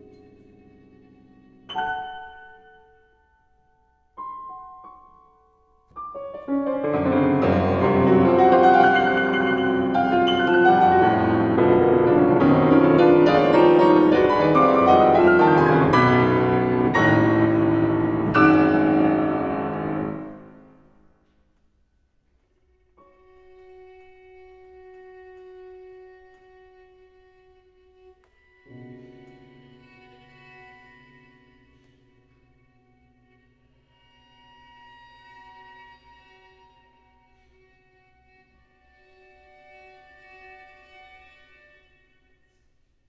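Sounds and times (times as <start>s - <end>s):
grand piano playing: 0.0s - 3.4s, 4.2s - 21.1s.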